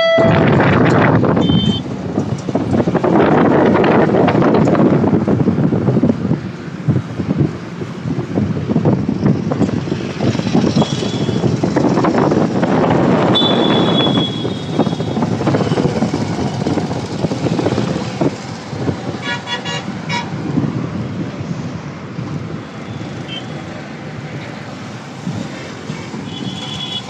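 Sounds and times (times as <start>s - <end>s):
short high beep: 0.0s - 0.5s, 1.4s - 1.8s
vehicle horns honking: 0.0s - 0.6s, 1.4s - 1.9s, 10.8s - 11.4s, 13.3s - 15.8s, 19.2s - 20.4s, 26.3s - 27.0s
motorbikes passing: 0.0s - 27.0s.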